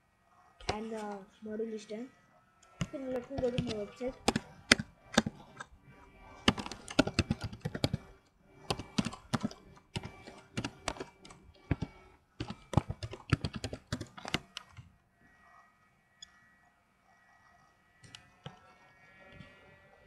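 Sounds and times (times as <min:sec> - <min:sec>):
keyboard typing: 0:00.6 - 0:01.2, 0:02.6 - 0:14.9, 0:18.0 - 0:19.5.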